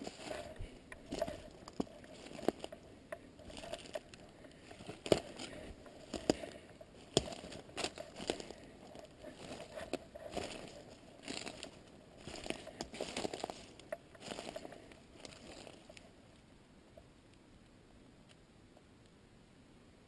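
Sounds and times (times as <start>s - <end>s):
footsteps crunching through leaves: 0.0s - 2.8s, 3.4s - 16.0s
twigs snapping underfoot: 0.0s - 16.1s.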